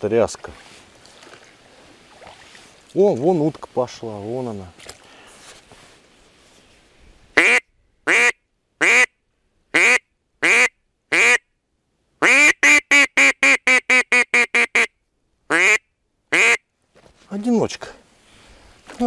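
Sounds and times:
duck call quacks: 7.4 - 9.1, 9.7 - 11.4, 12.2 - 14.9, 15.5 - 16.6.

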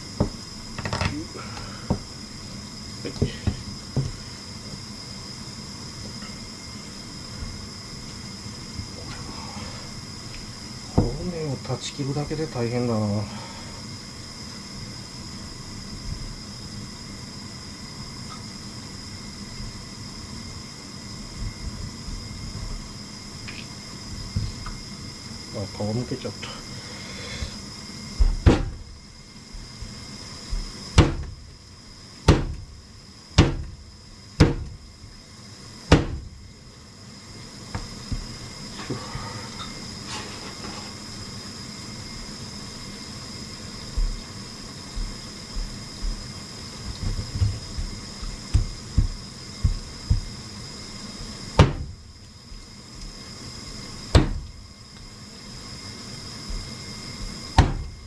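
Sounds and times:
soft quick thumps: 46.9 - 50.4.

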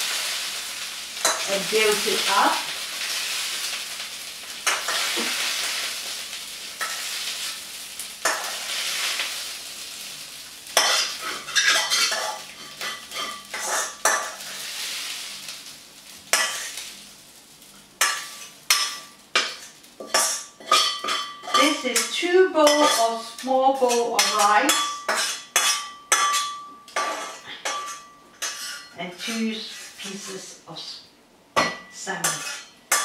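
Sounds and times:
rice sizzling in a wok: 0.0 - 33.0
metal spatula scraping wok: 10.8 - 15.2, 16.3 - 16.8, 18.0 - 30.6, 31.9 - 33.0.

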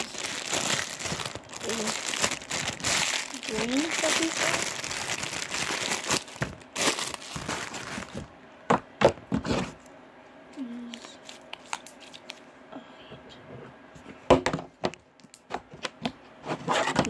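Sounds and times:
plastic packaging crinkling: 0.0 - 8.3.

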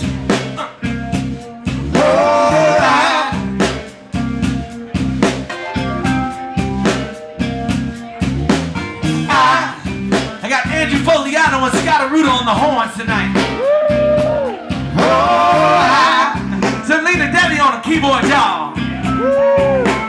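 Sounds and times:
bass and guitar: 0.0 - 20.0
drum kit beat: 0.0 - 20.0
person singing: 1.9 - 3.5, 9.2 - 10.0, 13.6 - 16.5.

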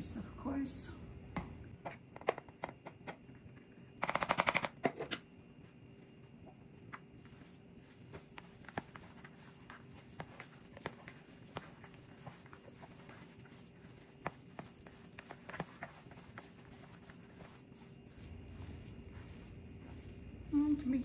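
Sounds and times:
hands kneading meat: 6.7 - 21.0.

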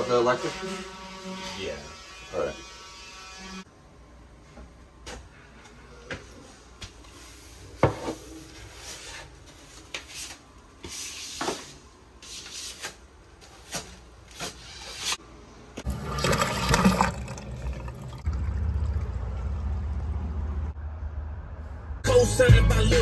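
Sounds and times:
hand tool scraping floor and pan: 7.2 - 15.2.

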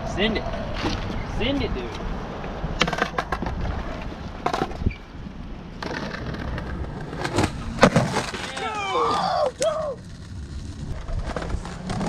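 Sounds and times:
skateboard wheels rumbling on concrete: 0.4 - 12.0
skateboard clicks and knocks: 1.9 - 5.1, 5.8 - 12.0.

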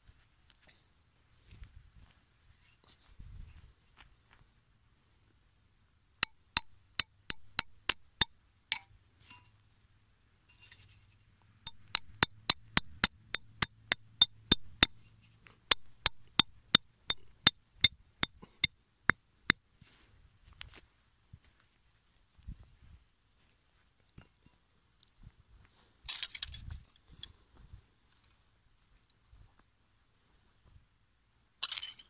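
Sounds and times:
hammer striking metal stake: 6.2 - 8.9, 11.7 - 15.1, 15.7 - 18.7.

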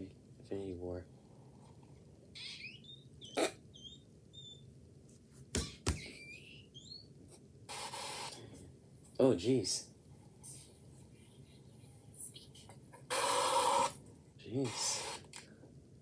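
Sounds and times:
tv static hiss: 0.0 - 16.0
high squeaky chirps: 2.3 - 4.7, 5.7 - 7.2.

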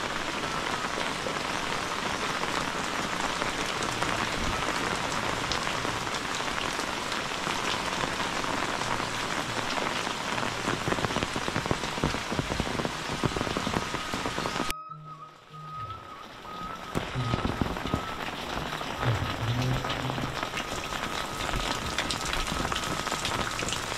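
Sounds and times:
rain on roof tiles: 0.0 - 14.7, 15.4 - 23.9
faint steady tone: 14.7 - 23.9.

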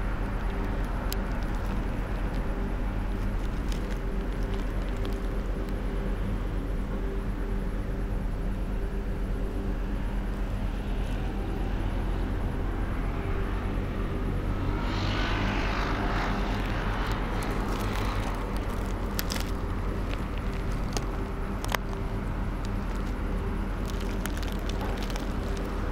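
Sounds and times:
traffic hum: 0.0 - 25.9
vehicle passing: 9.5 - 25.9.

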